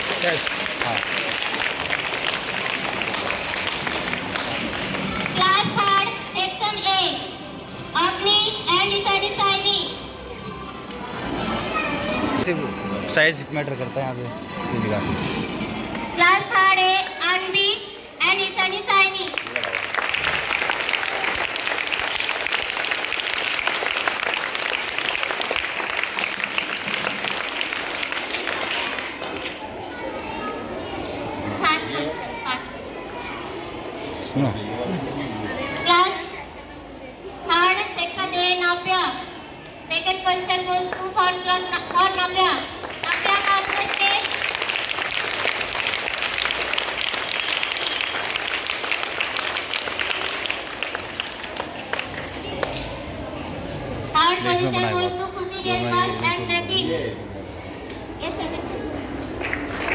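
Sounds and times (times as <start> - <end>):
crowd applauding: 0.0 - 5.5, 19.2 - 29.6, 42.7 - 52.7, 59.4 - 59.9.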